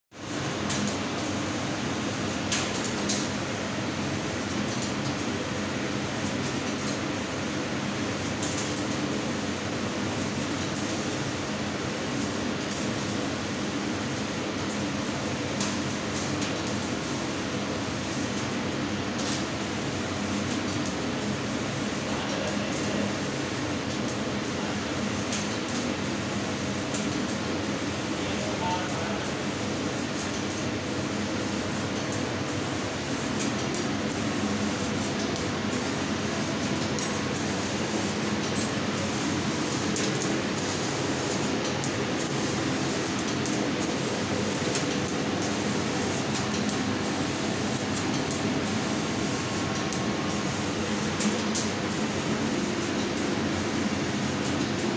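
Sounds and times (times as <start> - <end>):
laser cutting machine humming: 21.0 - 54.9.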